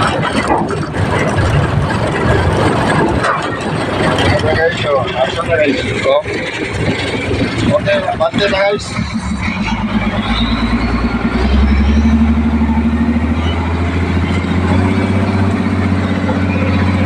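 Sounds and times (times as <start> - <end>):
diesel engine running: 0.0 - 17.0
faint rising whine: 7.6 - 14.8.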